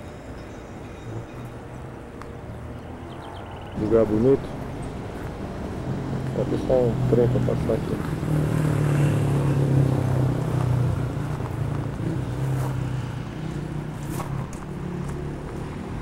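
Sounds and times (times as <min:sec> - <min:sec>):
vehicle engine humming: 0:01.1 - 0:16.0.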